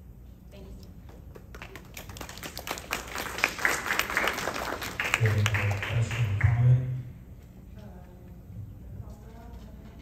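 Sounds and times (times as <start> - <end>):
audience applauding: 1.4 - 6.8.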